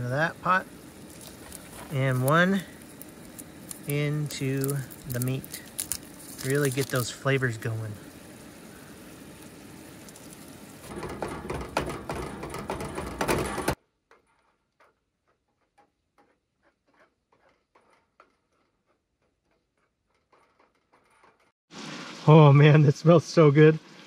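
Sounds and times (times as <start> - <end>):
meat sizzling in a frying pan: 0.6 - 11.1, 21.7 - 24.0.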